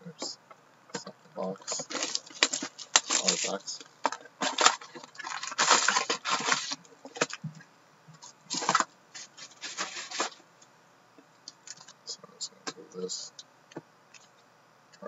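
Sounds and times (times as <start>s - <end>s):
foil packs crinkling and rustling: 1.6s - 7.4s, 8.5s - 10.4s.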